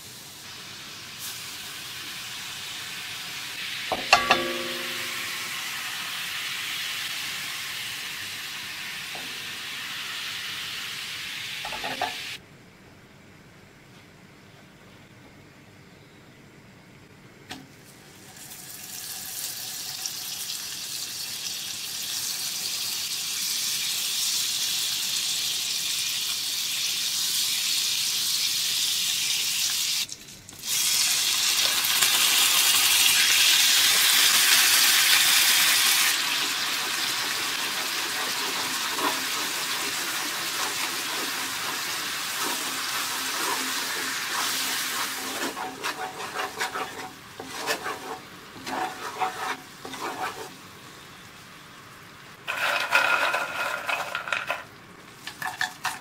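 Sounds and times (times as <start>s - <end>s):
syrup bubbling and sizzling in a pan: 0.0s - 11.8s, 17.9s - 56.0s
milk hissing in hot syrup: 30.6s - 50.6s
wooden spoon scraping and stirring: 42.4s - 50.6s, 52.5s - 56.0s.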